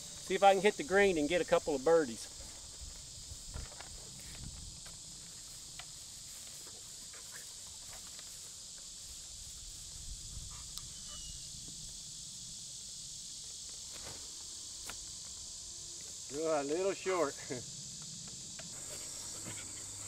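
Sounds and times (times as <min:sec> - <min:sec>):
insects chorus: 0:00.0 - 0:20.0
faint ticks: 0:10.6 - 0:10.9.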